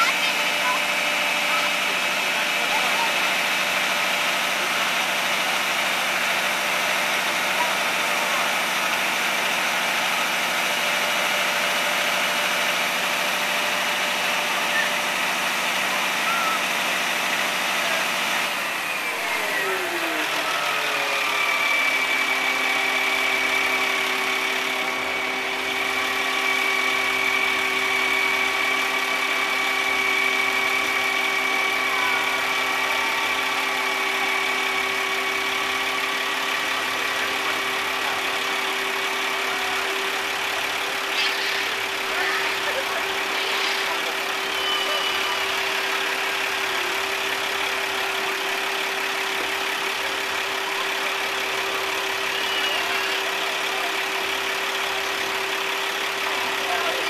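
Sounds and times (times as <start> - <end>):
steady hydraulic whine: 0.0 - 57.0
truck engine running: 0.0 - 57.0.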